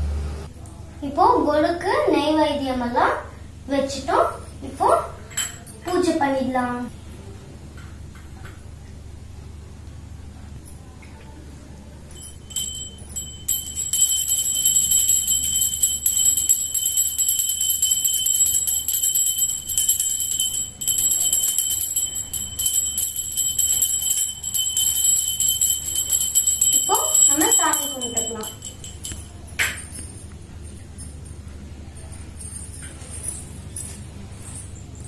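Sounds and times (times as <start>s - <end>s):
hand bell ringing rapidly: 12.1s - 34.0s.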